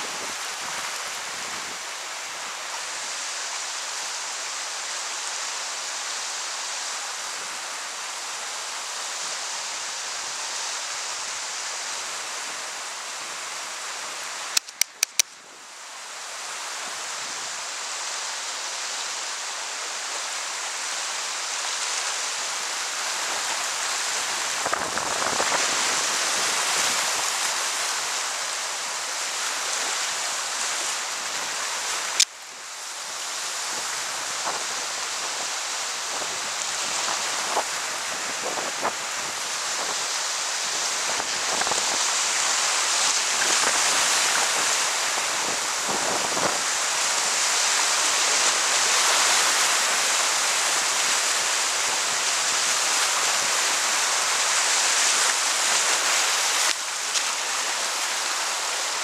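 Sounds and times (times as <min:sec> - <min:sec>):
rushing white water: 0:00.0 - 0:59.0
sharp clicks: 0:14.5 - 0:15.4.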